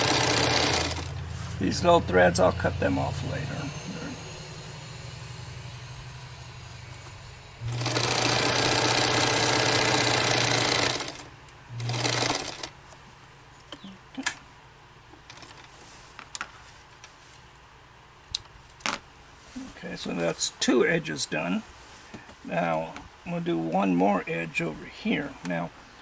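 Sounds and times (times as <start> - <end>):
sewing machine stitching: 0.0 - 1.1, 7.6 - 12.7.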